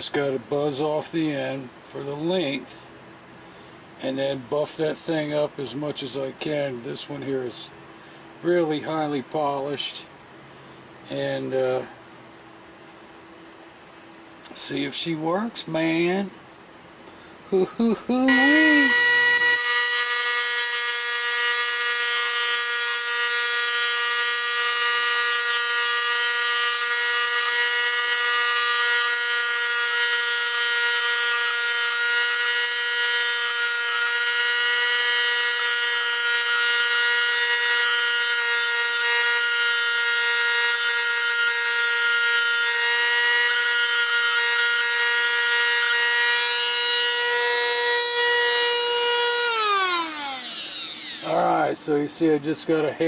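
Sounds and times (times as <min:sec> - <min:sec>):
rotary tool grinding steel: 0:18.2 - 0:51.6.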